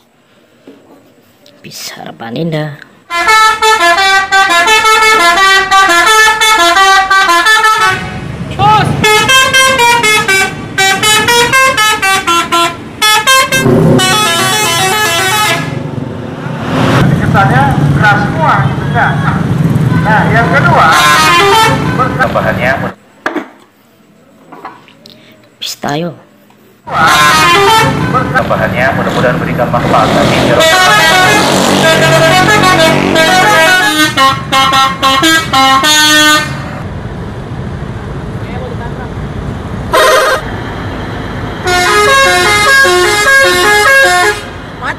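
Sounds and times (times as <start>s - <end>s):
bus engine rumbling: 0.0s - 44.9s
musical air horn tune: 3.1s - 8.2s, 9.0s - 15.8s, 20.8s - 22.1s, 26.9s - 28.2s, 30.0s - 36.8s, 39.9s - 40.5s, 41.6s - 44.5s.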